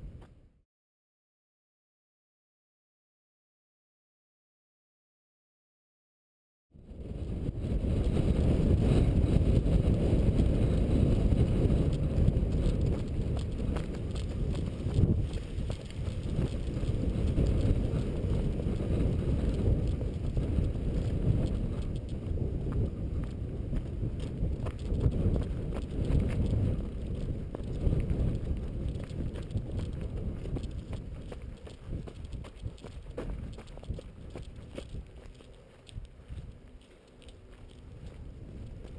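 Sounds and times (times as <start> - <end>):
wind rumbling on microphone: 0.0 - 0.4, 6.8 - 38.9
footsteps on gravel: 11.8 - 38.9.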